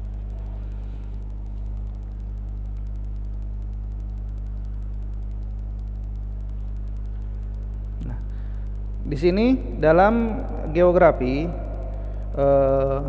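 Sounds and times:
faint regular ticking: 0.0 - 13.0
low-pitched hum: 0.0 - 13.0.

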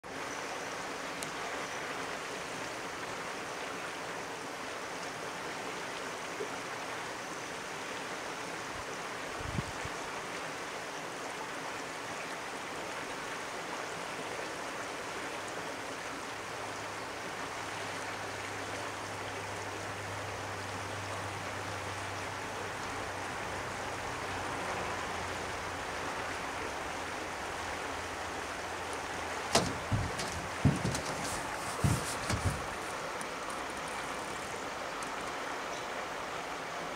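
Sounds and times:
river running over rocks: 0.0 - 36.9
sharp knocks: 29.5 - 33.0.

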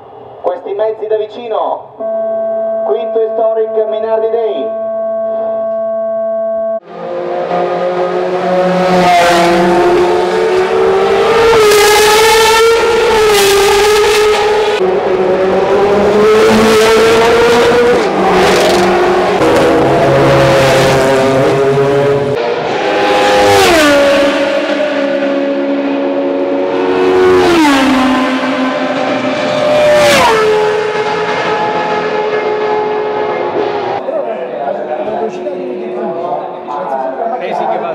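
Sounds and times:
racing car engines at high revs: 5.0 - 34.0.

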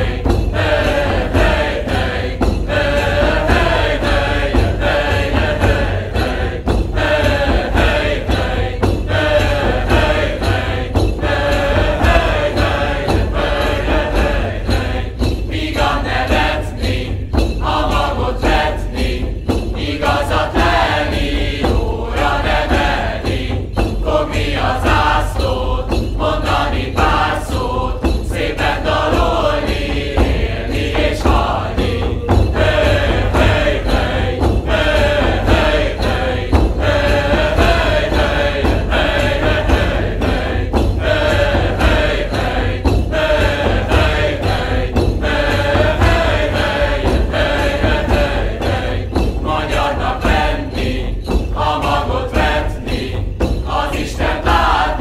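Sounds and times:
drum strikes: 0.0 - 55.0
voices chanting in unison: 0.0 - 55.0.

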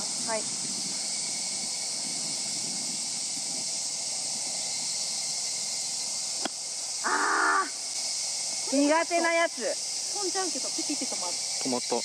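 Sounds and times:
insects droning: 0.0 - 12.0
person exclaiming: 7.0 - 7.8.

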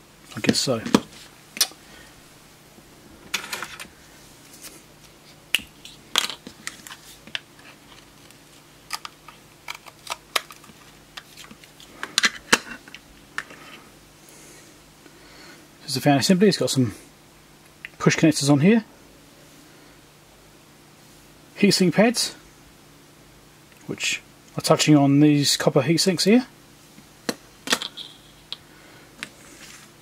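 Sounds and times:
plastic case clicking apart: 5.6 - 13.5.

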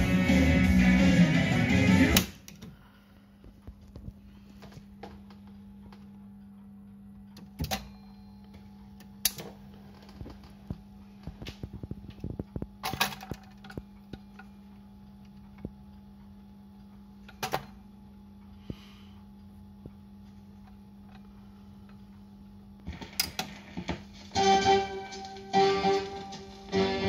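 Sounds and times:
steady low hum: 0.4 - 27.0
record changer clicks and clunks: 2.1 - 2.8, 7.3 - 14.5, 17.2 - 17.9, 22.8 - 26.9.

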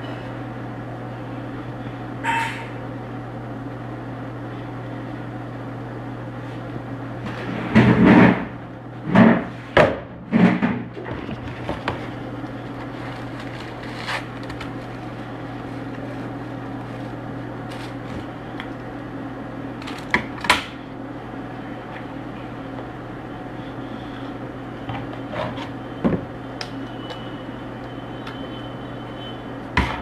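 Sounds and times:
steady electrical hum: 0.0 - 30.0.

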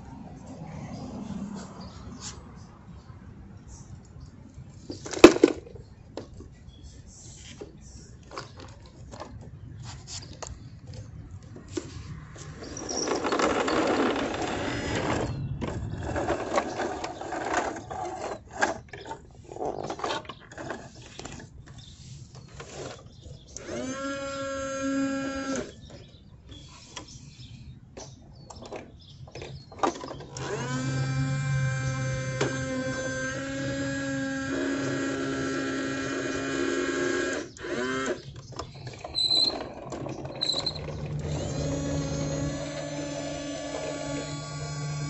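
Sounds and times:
rattling and scraping: 7.3 - 23.4, 38.2 - 45.0.

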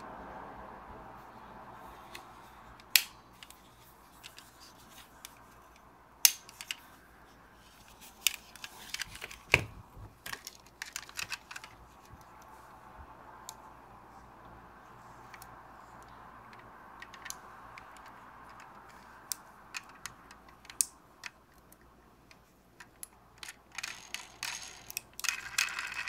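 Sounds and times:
metal model car clicks and taps: 2.8 - 3.6, 15.3 - 26.0.

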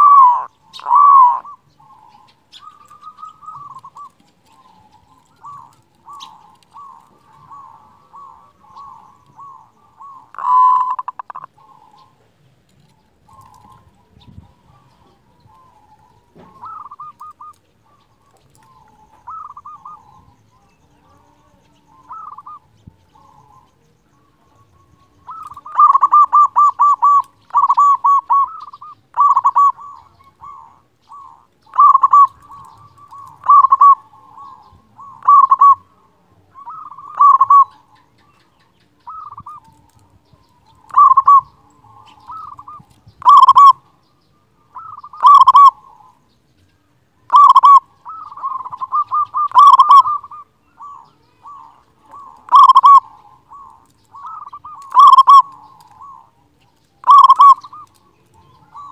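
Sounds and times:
dove cooing: 0.0 - 46.4, 47.2 - 58.9.

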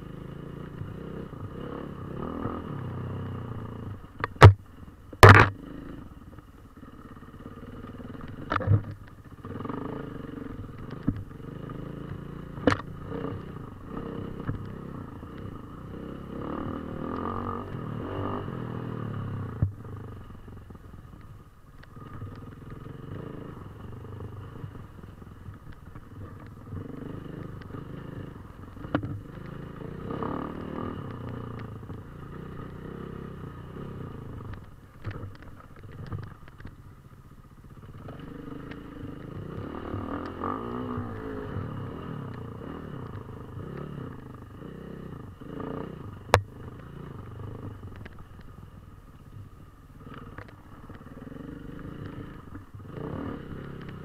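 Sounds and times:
dirt bike engine revving: 0.0 - 3.9, 6.8 - 19.6, 26.1 - 34.4, 38.0 - 47.8, 50.0 - 54.0.

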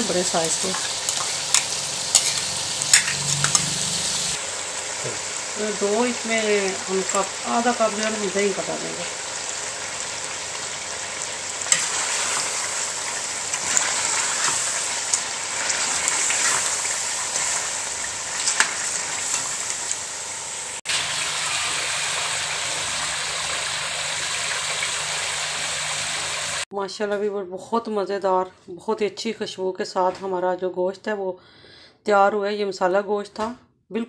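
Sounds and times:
curry sizzling in oil: 0.0 - 26.7.

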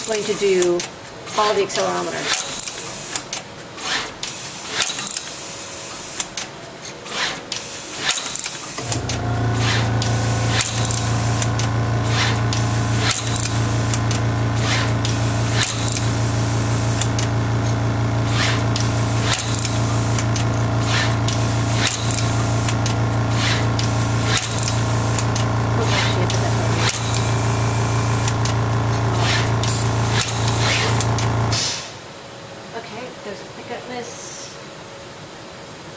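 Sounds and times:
low mechanical hum: 8.8 - 33.5.

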